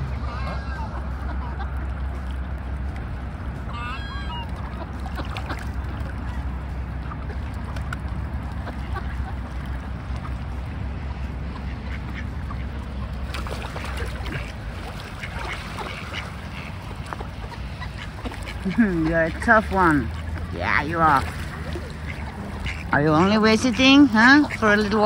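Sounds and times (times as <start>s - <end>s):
ducks quacking: 0.0s - 25.0s
steady low rumble: 0.0s - 25.0s
swans honking: 0.0s - 25.0s.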